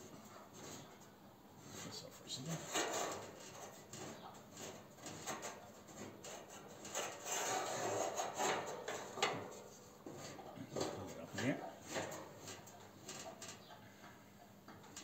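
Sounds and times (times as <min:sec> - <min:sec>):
scraping rub: 0:01.6 - 0:13.2.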